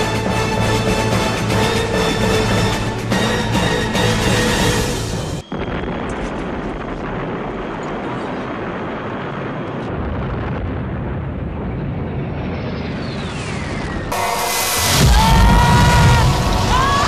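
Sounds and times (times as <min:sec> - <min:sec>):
explosion-like rumble: 0:05.4 - 0:17.0.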